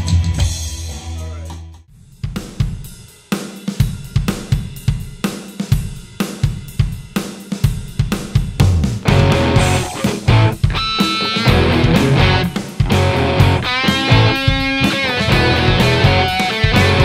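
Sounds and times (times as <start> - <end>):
drum kit rock beat: 0.0 - 17.0
music with low bass line: 8.6 - 10.8, 11.4 - 17.0.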